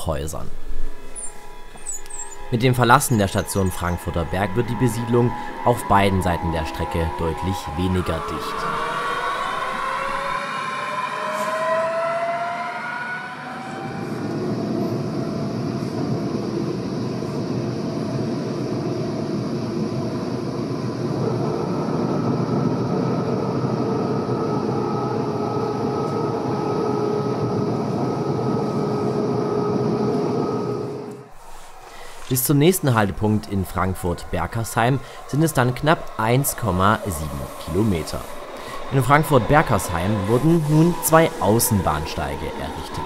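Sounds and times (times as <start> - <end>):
steady hum: 0.0 - 11.2, 13.4 - 43.0
electric train motors whining: 0.4 - 43.0
train wheels rumbling on rails: 13.9 - 43.0.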